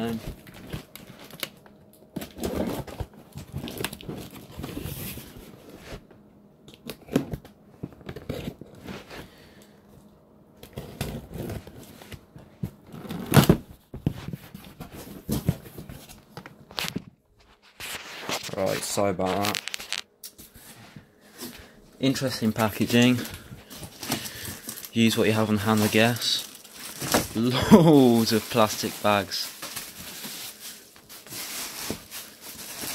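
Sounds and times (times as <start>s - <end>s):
packaging tearing and crinkling: 2.2s - 4.9s, 17.8s - 20.1s, 22.6s - 32.9s.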